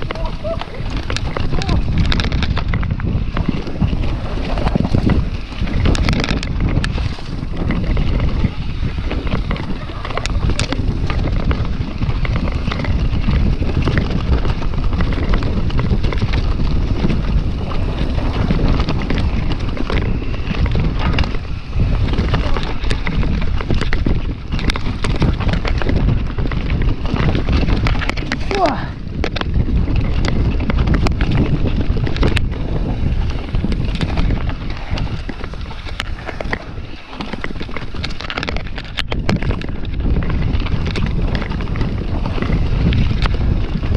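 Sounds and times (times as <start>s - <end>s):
bike rattling and knocking: 0.0s - 43.9s
tyres rumbling over dirt: 0.0s - 43.9s
wind buffeting microphone: 0.0s - 43.9s.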